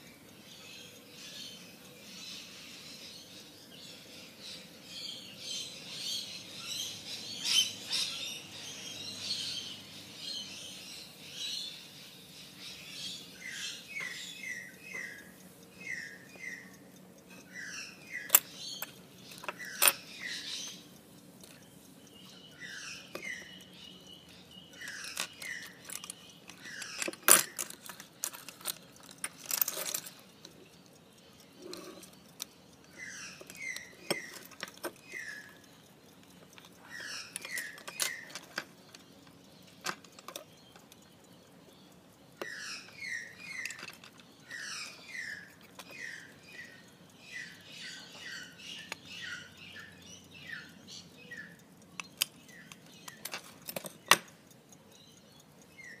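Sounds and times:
metallic clicks of watch case: 51.5s - 54.4s.

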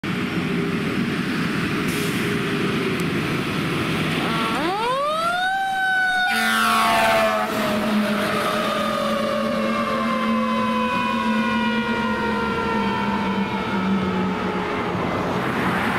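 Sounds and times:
fire engine passing: 0.0s - 15.9s
siren wailing: 4.1s - 15.9s
low horn-like tone: 6.3s - 7.9s.

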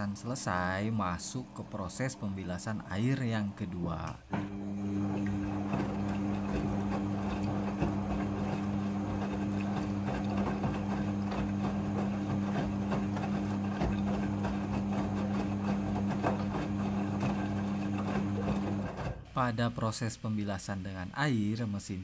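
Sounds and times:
washing machine drum sloshing: 4.0s - 19.3s.

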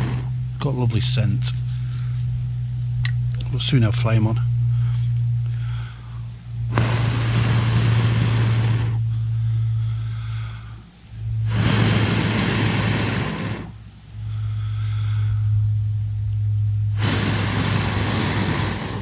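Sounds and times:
man blowing into a stove: 0.0s - 0.6s, 6.6s - 9.7s, 11.3s - 14.7s, 16.8s - 19.0s
low hum: 0.0s - 19.0s.

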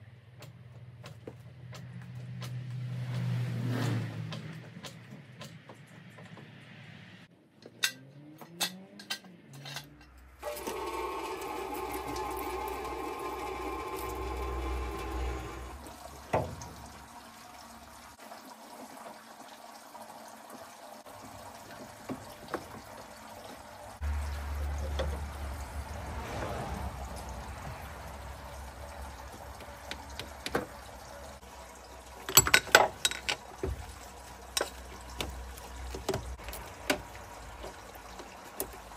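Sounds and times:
liquid pouring and trickling: 10.4s - 38.9s.

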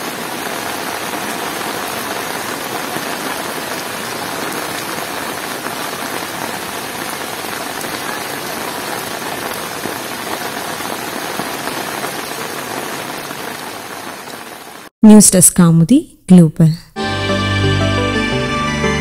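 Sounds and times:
heavy rain on floodwater: 0.0s - 14.9s.

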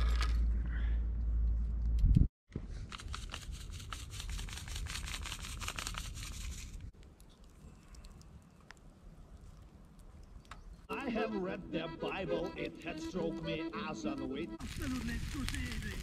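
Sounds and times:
wind rumble on microphone: 1.8s - 2.3s.

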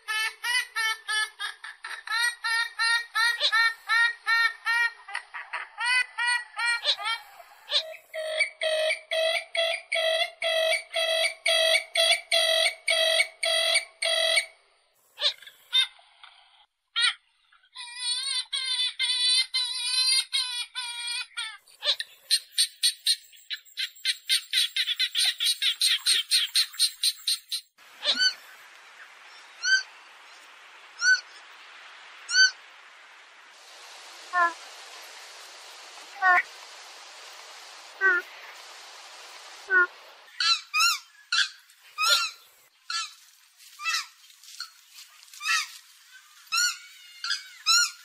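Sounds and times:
bird calls: 21.3s - 31.6s, 33.7s - 43.2s, 43.8s - 48.0s
steady hiss: 27.7s - 48.0s.

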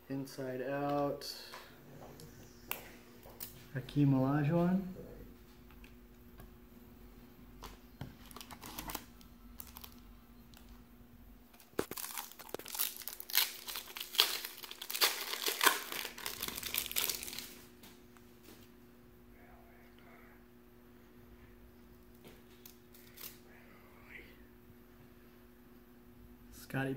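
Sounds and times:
wrapper tearing and crinkling: 8.2s - 10.0s, 11.6s - 17.7s, 22.6s - 23.4s.

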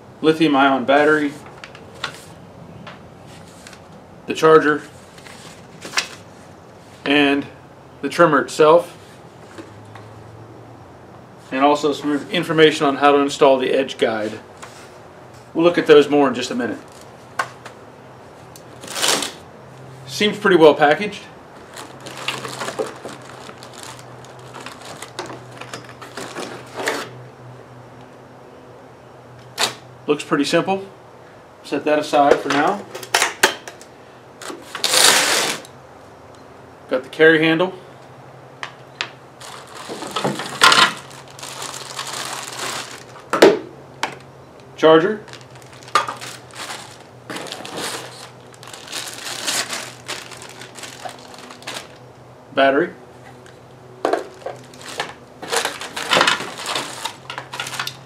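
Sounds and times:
cardboard and plastic rustling: 3.2s - 3.9s, 4.8s - 7.1s, 16.7s - 17.8s, 18.6s - 19.4s, 21.5s - 27.2s, 39.4s - 43.5s, 45.2s - 52.1s, 53.2s - 58.0s
plastic bags crinkling: 18.7s - 19.4s, 21.6s - 26.8s, 39.4s - 43.3s, 45.2s - 52.1s, 54.1s - 58.0s.

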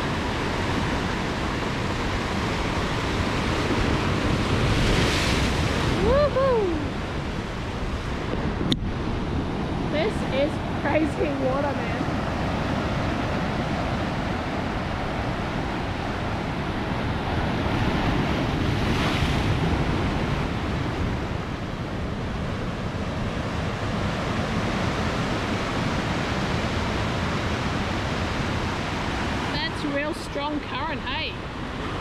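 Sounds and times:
seawater surging against rocks: 0.0s - 32.0s
wind buffeting microphone: 0.0s - 32.0s.

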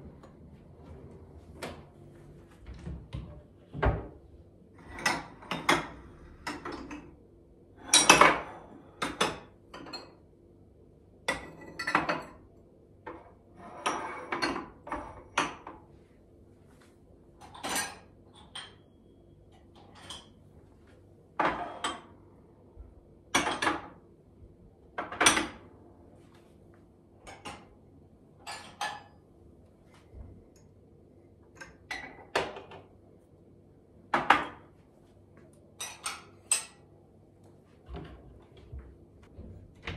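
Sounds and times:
ceramic cups clinking on shelf: 7.9s - 10.2s, 17.4s - 18.8s, 28.4s - 29.1s, 35.8s - 36.8s.

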